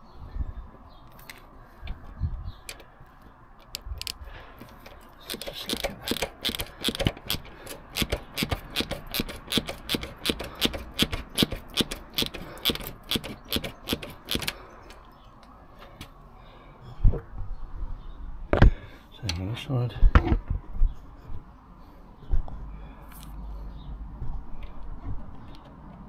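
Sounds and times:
hand ratchet clicking: 3.6 - 14.6.

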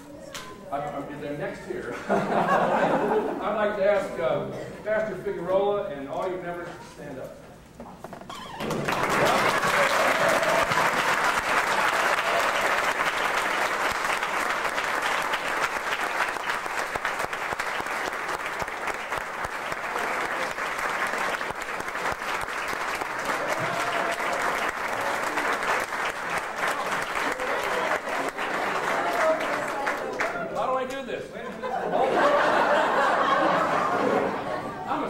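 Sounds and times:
crowd applauding: 8.5 - 30.8.

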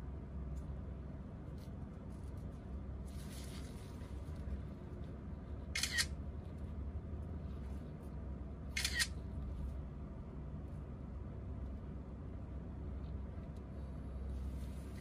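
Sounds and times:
camera shutter double click: 5.8 - 6.1, 8.8 - 9.2.

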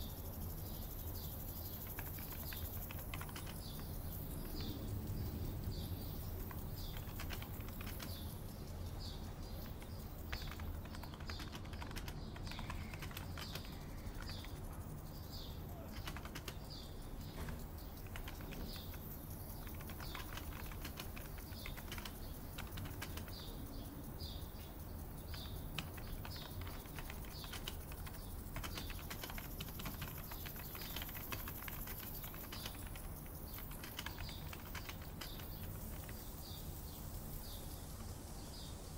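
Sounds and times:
bird chirping: 0.0 - 38.9
steady low hum: 0.0 - 38.9
keyboard key clicks: 1.8 - 4.8, 6.2 - 8.3, 9.5 - 14.6, 15.8 - 23.6, 25.2 - 36.3.

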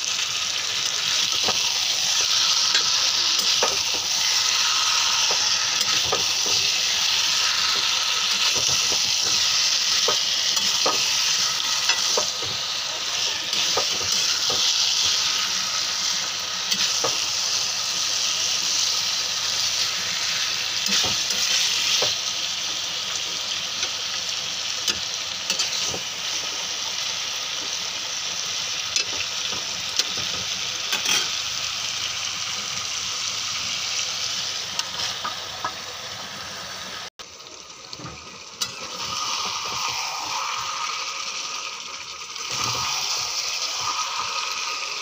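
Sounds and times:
food sizzling in a frying pan: 0.0 - 45.0.

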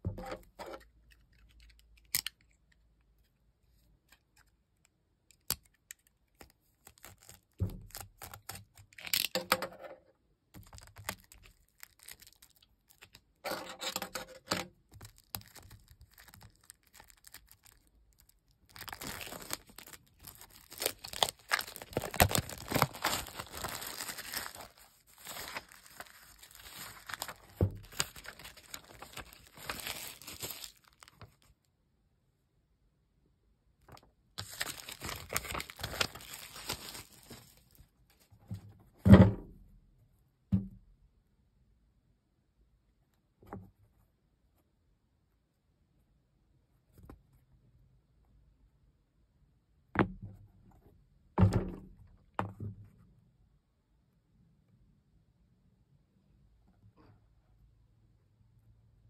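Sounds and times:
plastic shrink-wrap tearing and crinkling: 6.8 - 9.4, 10.6 - 31.4, 34.4 - 37.8.

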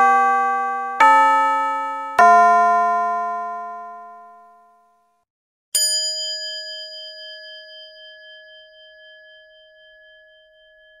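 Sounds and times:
bell ringing: 0.0 - 4.5, 5.8 - 9.6.

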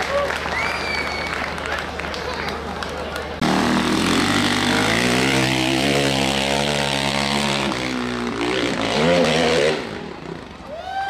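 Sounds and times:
dirt bike engine revving: 3.4 - 10.6.

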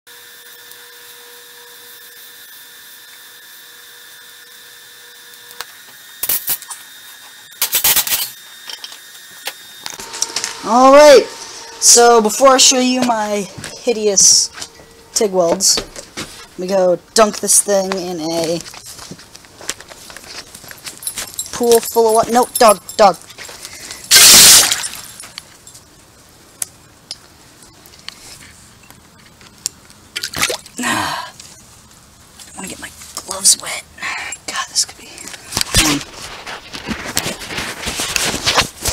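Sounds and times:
welding arc humming: 0.1 - 25.6
loud bursts of noise: 9.9 - 15.2, 24.1 - 25.2.

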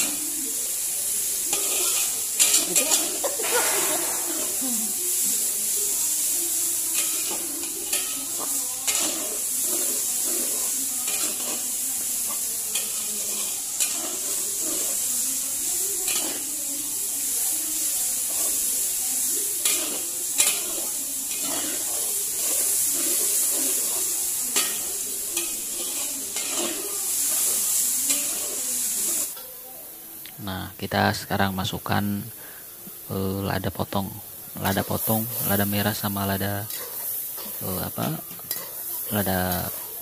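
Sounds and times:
meat sizzling in a wok: 0.0 - 40.0
ladle scraping a wok: 1.4 - 5.7, 6.9 - 15.2, 19.4 - 29.4.

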